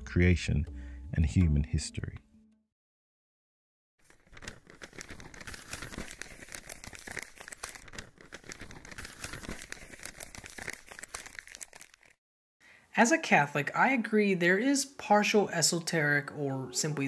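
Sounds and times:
parchment crinkling and rustling: 4.0s - 12.2s.

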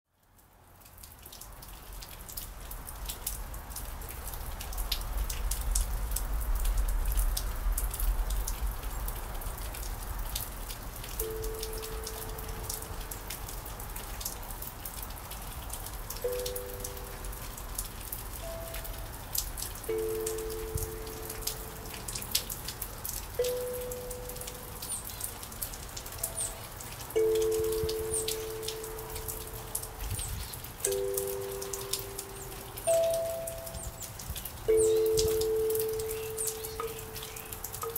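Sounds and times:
rain pattering: 0.1s - 37.9s
kalimba plucked: 19.9s - 21.9s, 27.2s - 29.8s, 30.9s - 37.9s.

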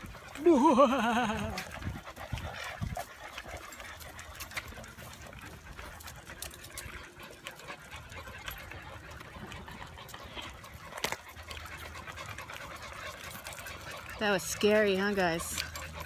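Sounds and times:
dogs panting: 0.0s - 16.0s
claws clicking on concrete: 1.5s - 14.2s.

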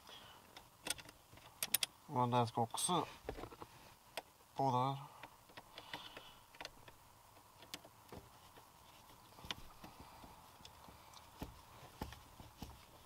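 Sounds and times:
pedal cover clicks and metal taps: 0.5s - 1.9s, 5.2s - 8.7s.

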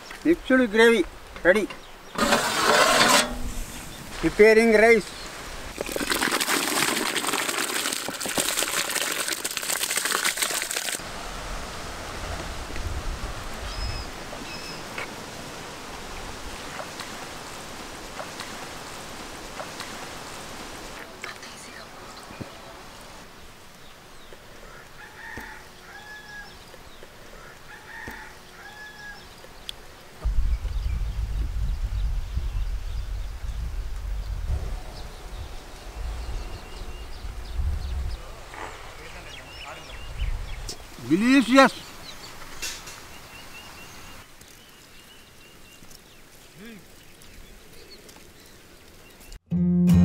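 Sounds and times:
rice pouring into boiling water: 5.7s - 11.0s.

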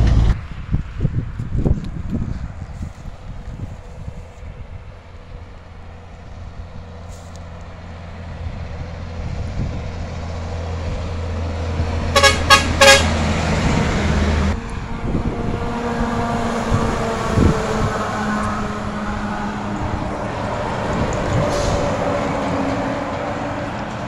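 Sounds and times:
diesel truck engine: 0.0s - 24.0s
truck horn blasts: 12.1s - 13.4s.

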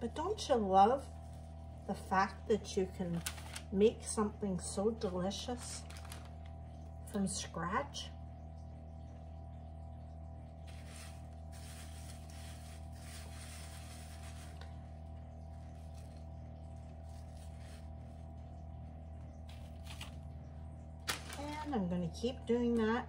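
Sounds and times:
low steady hum: 0.0s - 23.0s
seeds rustling on a plate: 10.6s - 18.6s.

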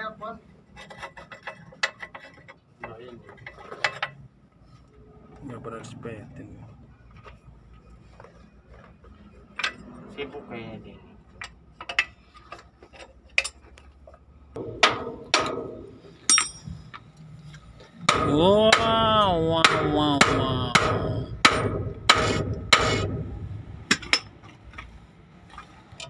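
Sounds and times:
hammer blows on steel: 18.1s - 23.3s.

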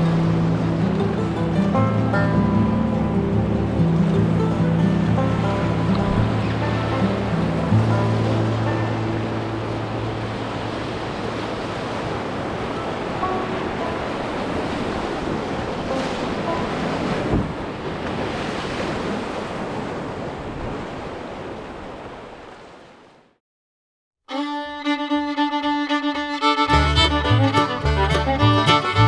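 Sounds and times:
fiddle music: 0.0s - 11.1s, 24.2s - 29.0s
river rapids rushing: 0.0s - 17.4s, 24.4s - 29.0s.

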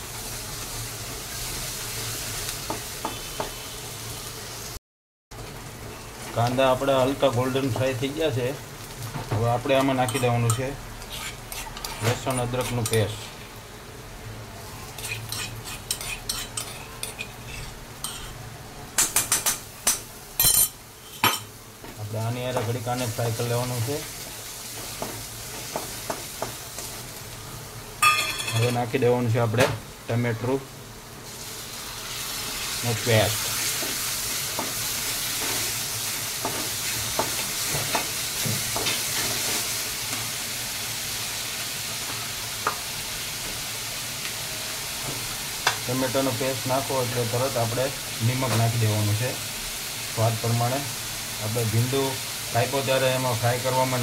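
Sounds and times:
onions sizzling in hot oil: 0.0s - 4.8s, 5.4s - 54.0s
wooden spatula scraping a pan: 11.1s - 12.9s, 15.0s - 18.4s.

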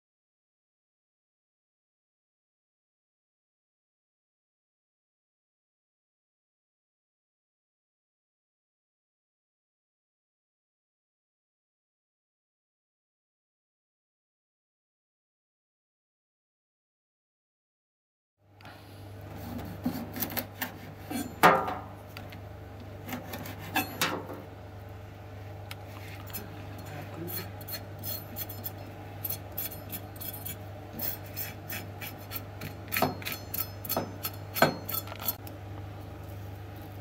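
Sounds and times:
steady low hum: 18.4s - 37.0s
knife scraping dried fish: 19.4s - 21.4s, 23.0s - 24.0s, 26.0s - 26.6s, 27.2s - 35.5s.

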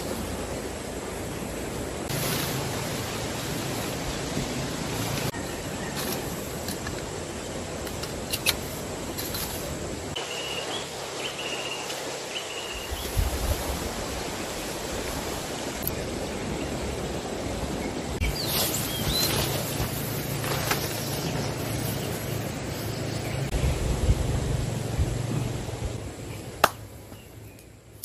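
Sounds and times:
river flowing: 0.0s - 23.6s
metal tent poles clicking: 7.8s - 9.6s.

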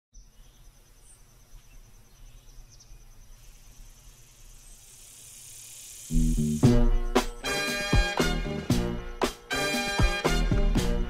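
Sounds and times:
pulsing insect trill: 0.2s - 8.2s.

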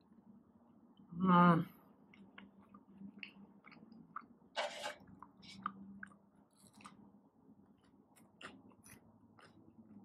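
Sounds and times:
person chewing close-up: 2.0s - 10.0s.

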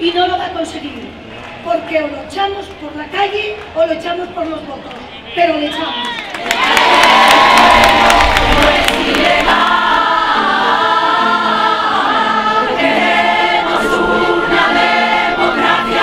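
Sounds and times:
large crowd singing in chorus: 6.8s - 16.0s.

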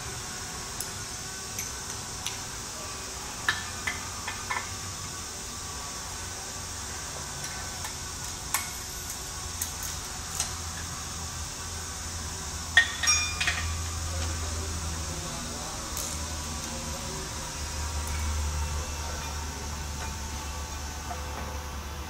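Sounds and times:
steady shop hiss: 0.0s - 22.0s
tools clinking on engine parts: 12.8s - 13.8s.

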